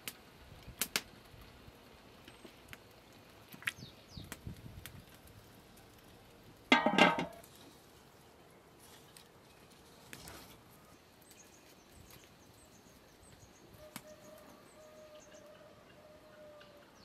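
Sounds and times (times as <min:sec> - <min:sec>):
potatoes clinking into metal pot: 0:06.7 - 0:07.4.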